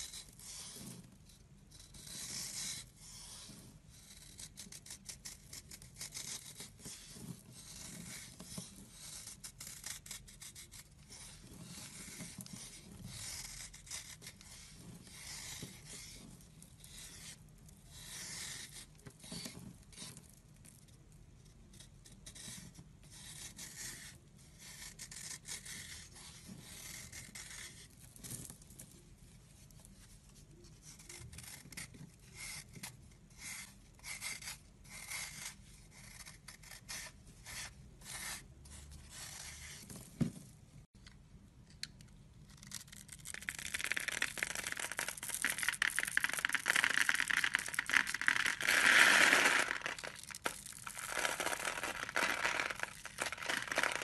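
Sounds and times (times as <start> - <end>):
knife scraping soap: 0.0 - 29.0, 30.5 - 38.5
soap crumbling: 42.5 - 54.0.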